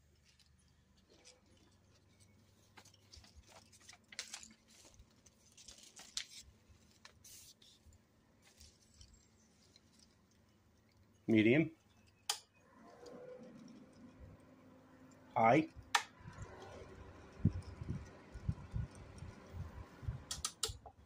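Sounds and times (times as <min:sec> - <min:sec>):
paper strips rustling: 0:00.0 - 0:11.2
fan running on low: 0:12.7 - 0:20.9.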